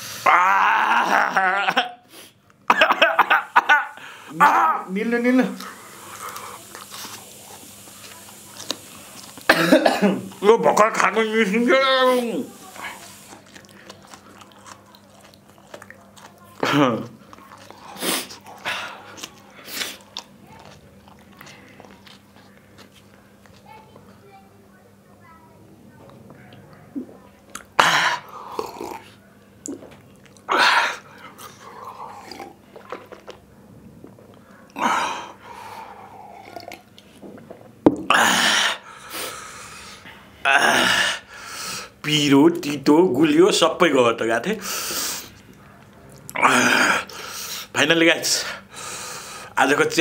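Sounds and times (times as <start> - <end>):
man blowing hard breaths: 3.9 - 4.4, 38.1 - 42.0, 48.6 - 49.6
man huffing and hissing: 38.1 - 42.0.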